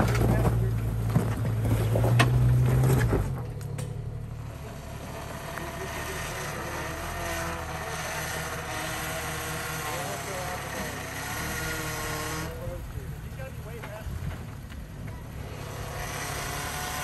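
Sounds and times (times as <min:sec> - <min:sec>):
engine running under load: 0:00.0 - 0:17.0
engine idling at low revs: 0:03.1 - 0:16.0.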